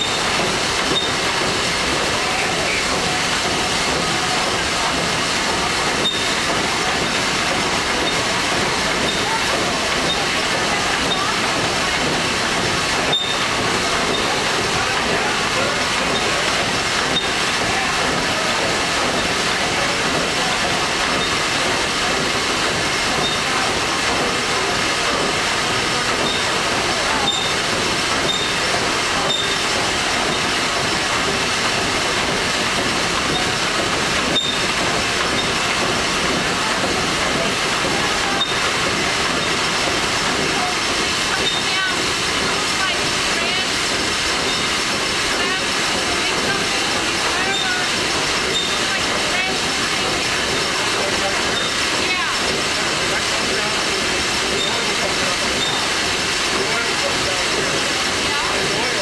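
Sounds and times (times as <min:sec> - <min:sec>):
steam engine running: 0:00.0 - 0:59.0.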